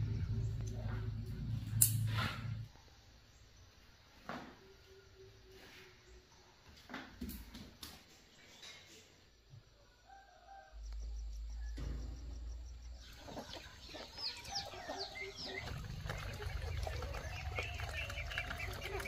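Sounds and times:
low steady rumble: 0.0 - 2.8, 10.8 - 19.0
rooster crowing: 9.8 - 11.2, 14.2 - 15.7
hens clucking: 13.0 - 19.0.

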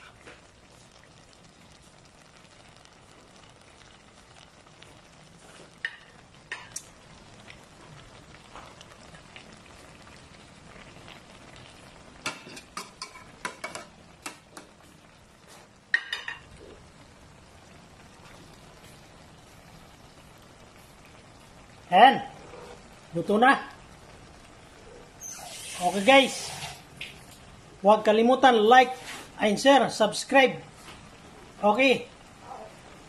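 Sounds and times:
stew simmering with faint sizzle: 0.0 - 33.0.

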